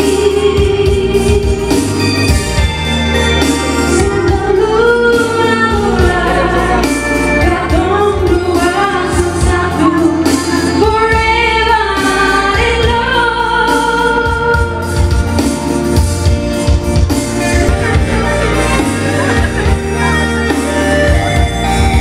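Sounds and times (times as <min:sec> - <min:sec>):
woman singing into microphone: 0:00.0 - 0:02.3, 0:03.8 - 0:15.5
live band playing: 0:00.0 - 0:22.0
steady bass: 0:00.0 - 0:22.0.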